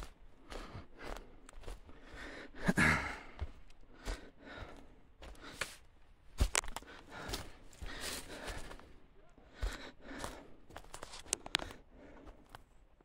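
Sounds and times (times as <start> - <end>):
breathy rustle: 0.0 - 12.7
footsteps on forest trail: 0.0 - 12.8
twigs snapping underfoot: 6.4 - 8.7, 10.8 - 11.8.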